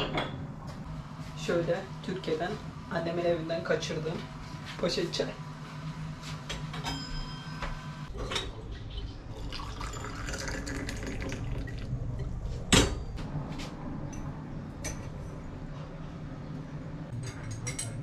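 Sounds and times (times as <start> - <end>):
liquid pouring into a glass: 9.3 - 12.0.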